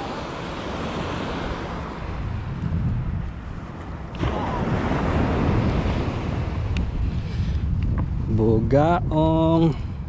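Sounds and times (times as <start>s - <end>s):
surf breaking on beach: 0.0s - 2.6s, 4.0s - 7.8s
wind buffeting microphone: 0.0s - 10.0s.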